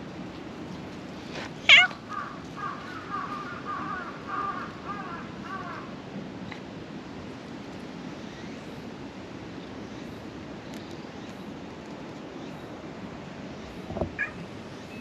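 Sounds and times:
cat soft wavering calls: 1.6 - 2.0
cat meowing: 1.7 - 2.0, 14.2 - 14.5.

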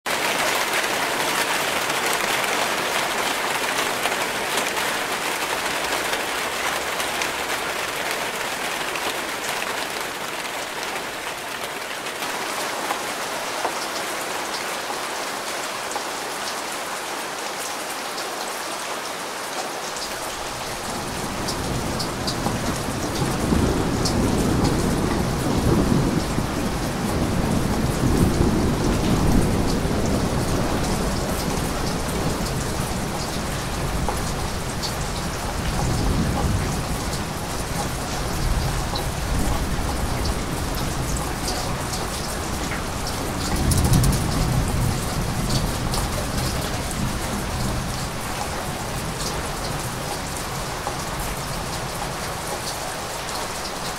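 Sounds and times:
rain falling: 0.0 - 53.9
deep rolling thunder: 20.4 - 52.0.

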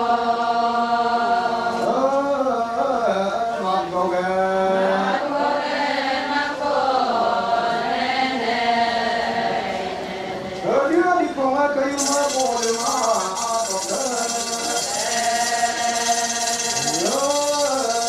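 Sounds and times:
women chanting in unison: 4.8 - 10.5
high hissing rattle: 12.0 - 18.0.

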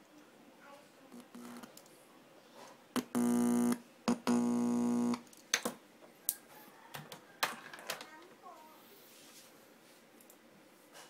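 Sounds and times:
speaker buzzing: 1.1 - 1.7, 3.0 - 5.2.

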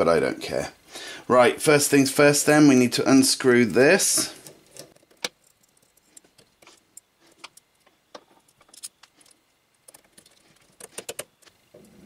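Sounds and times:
faint clicks of small metal parts: 4.4 - 11.9.

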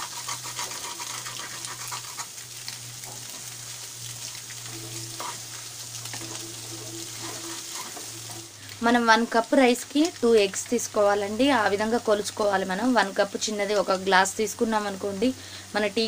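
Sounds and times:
wooden spatula scraping pan: 0.0 - 2.3, 4.8 - 5.5, 6.1 - 8.4
food sizzling in oil: 0.0 - 16.0.

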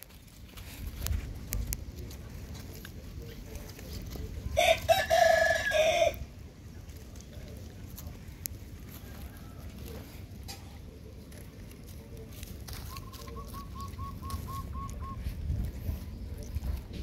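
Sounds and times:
rooster crowing: 4.6 - 6.2.

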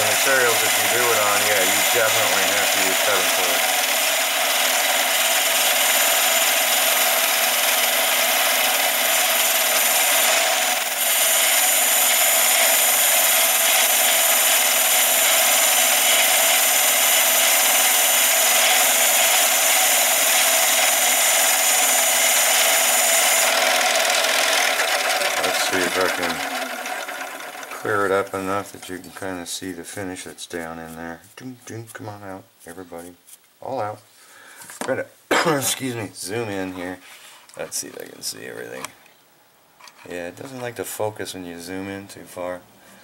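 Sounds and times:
high hissing cutting noise: 0.0 - 4.8
lathe running: 0.0 - 29.2.

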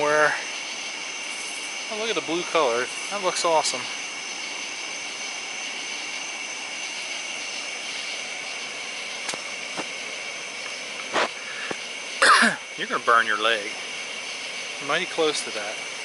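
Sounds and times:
gas burner hissing: 0.0 - 16.0
high-pitched buzz: 0.0 - 16.0.

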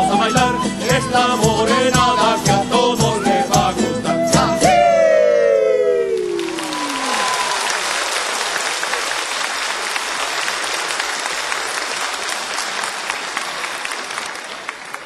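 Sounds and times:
audience applauding: 6.1 - 15.0.

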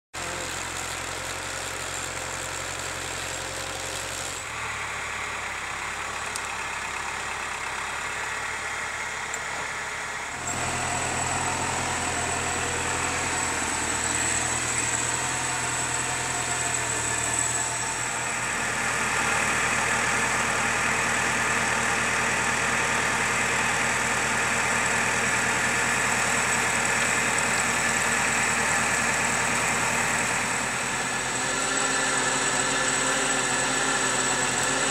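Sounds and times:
tractor diesel engine running: 0.2 - 34.9.

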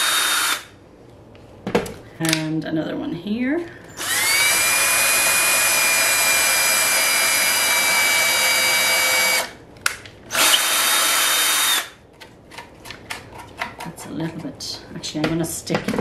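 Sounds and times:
cordless drill boring into wood: 0.0 - 0.7, 4.0 - 9.5, 10.3 - 11.9.

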